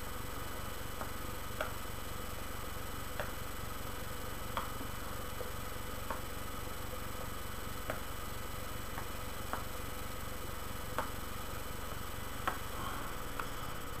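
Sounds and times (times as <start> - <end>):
electrical hiss and hum: 0.0 - 14.0.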